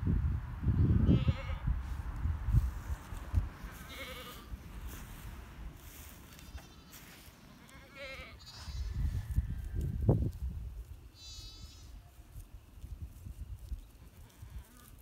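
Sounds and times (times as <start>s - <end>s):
goat bleating: 1.1s - 1.6s, 3.8s - 4.6s, 6.4s - 9.0s, 11.1s - 12.0s.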